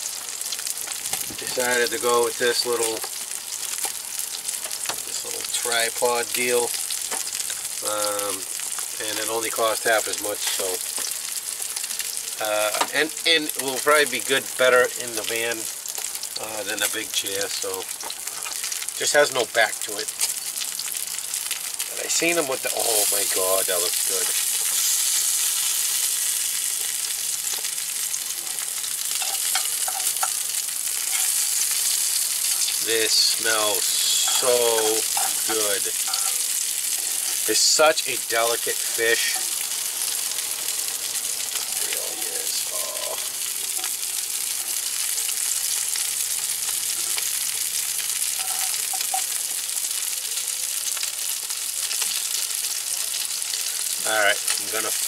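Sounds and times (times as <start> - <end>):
fish sizzling in a skillet: 0.0 - 55.0
fork clinking in pan: 29.2 - 30.4.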